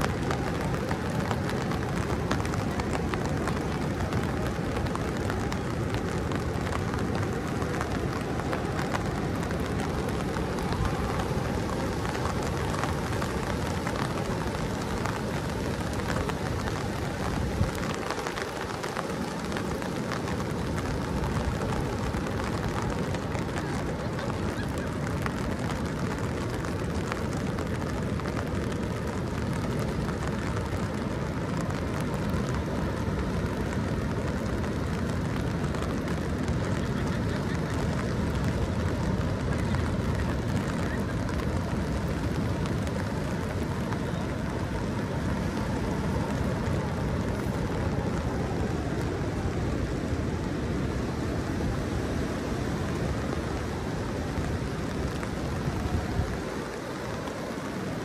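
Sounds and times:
rain on an umbrella: 0.0s - 58.0s.

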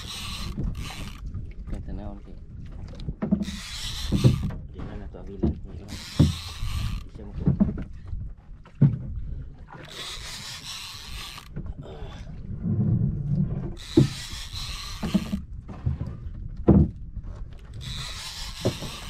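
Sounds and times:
fishing reel cranking: 0.0s - 1.3s, 3.4s - 4.6s, 5.8s - 7.3s, 9.8s - 11.6s, 13.8s - 15.4s, 17.6s - 19.0s
dull knocks: 3.2s - 6.6s, 16.5s - 17.0s.

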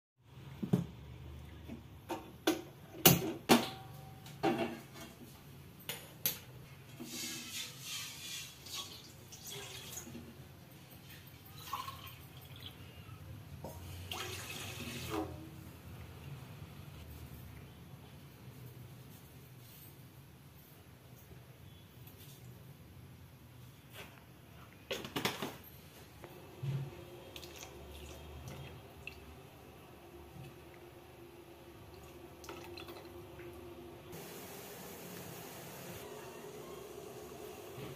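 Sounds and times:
water pouring and splashing: 7.0s - 10.3s, 13.9s - 15.4s, 27.2s - 29.3s, 31.9s - 33.2s
clinks and splashes: 8.7s - 13.0s.

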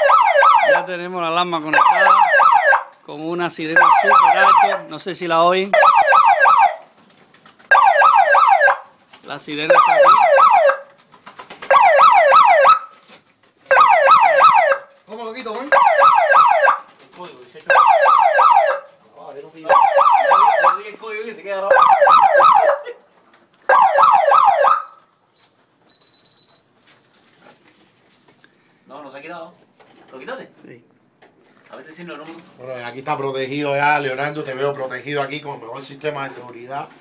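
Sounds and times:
electronic alarm siren whoops: 0.0s - 0.8s, 1.7s - 2.8s, 3.8s - 4.8s, 5.7s - 6.8s, 7.7s - 8.8s, 9.7s - 10.8s, 11.7s - 12.9s, 13.7s - 14.8s, 15.7s - 16.8s, 17.7s - 18.8s, 19.7s - 20.8s, 21.7s - 22.8s, 23.7s - 25.0s.

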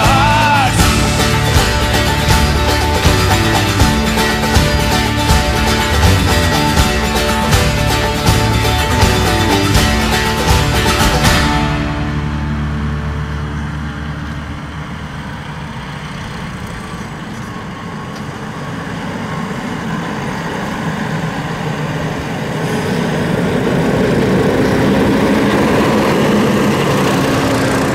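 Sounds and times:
tractor mowing grass: 0.0s - 27.9s.

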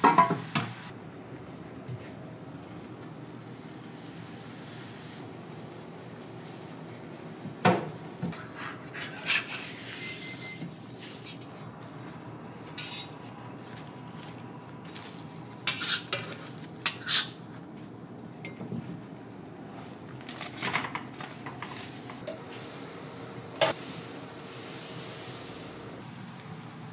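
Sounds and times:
metal spatula scraping griddle: 8.5s - 11.4s, 12.8s - 13.2s, 15.7s - 17.4s.

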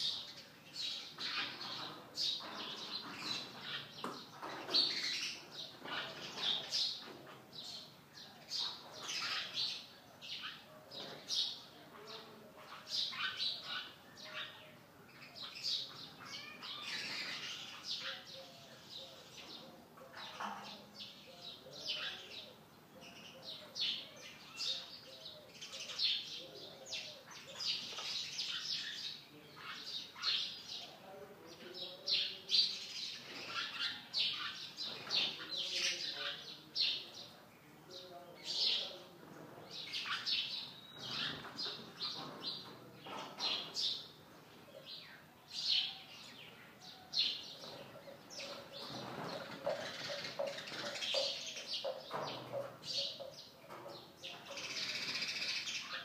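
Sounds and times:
sparrows chirping: 0.0s - 56.0s.

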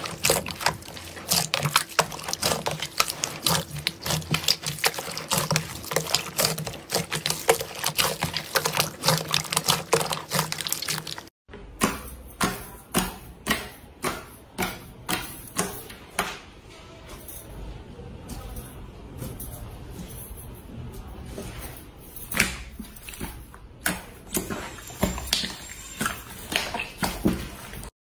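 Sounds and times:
slime squelching and crackling: 0.0s - 11.3s, 24.2s - 27.9s
wet slime squelch: 0.0s - 11.3s, 21.2s - 27.9s.

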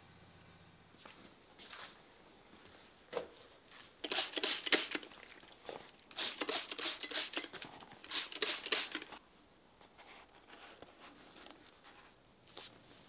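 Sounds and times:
spray bottle squirting mist: 4.0s - 5.2s, 6.1s - 9.2s.

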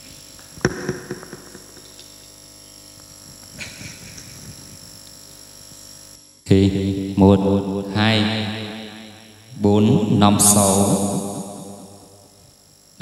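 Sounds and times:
sound system hum and hiss: 0.0s - 13.0s
sharp knock: 0.6s - 1.8s.

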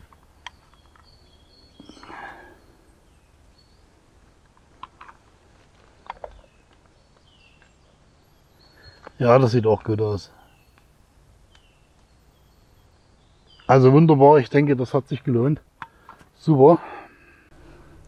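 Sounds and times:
faint bird chirps: 0.0s - 4.2s, 5.9s - 18.0s
soft rustle: 4.3s - 7.8s.

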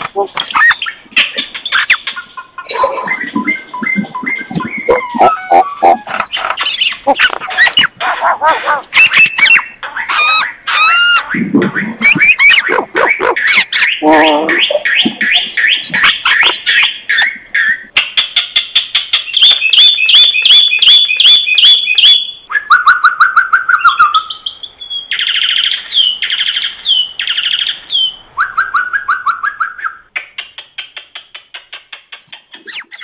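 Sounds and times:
myna chattering calls: 0.0s - 17.9s, 32.2s - 33.0s.

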